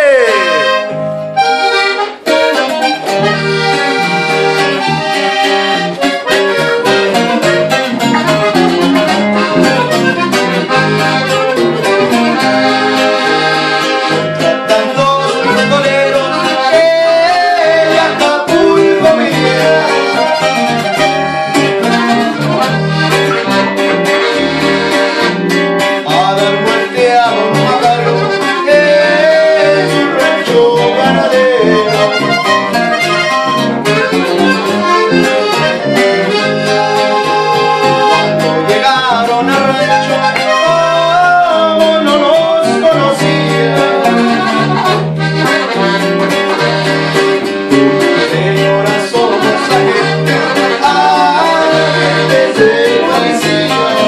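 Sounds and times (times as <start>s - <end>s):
man singing: 0.0s - 0.9s, 14.3s - 22.9s, 26.0s - 33.7s, 34.3s - 45.1s, 47.7s - 54.0s
button accordion: 0.0s - 54.0s
electric bass: 0.0s - 54.0s
strummed twelve-string guitar: 0.0s - 54.0s.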